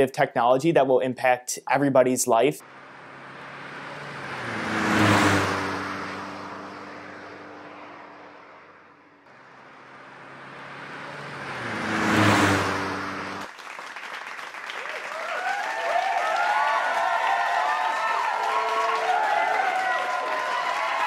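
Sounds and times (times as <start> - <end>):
car driving past: 2.6 - 13.5.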